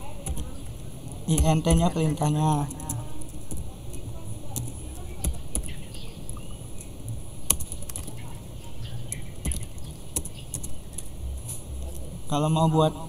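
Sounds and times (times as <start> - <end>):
keyboard typing clicks: 0.2 - 11.1.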